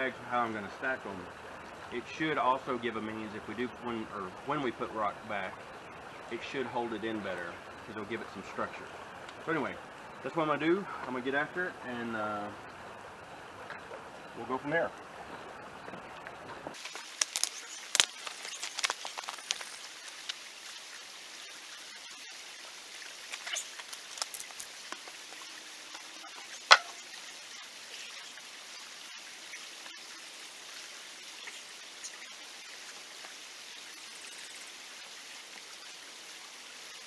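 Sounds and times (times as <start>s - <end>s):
faint steady hiss: 0.0s - 37.0s
loose rock crunching underfoot: 16.7s - 20.4s, 23.3s - 26.1s.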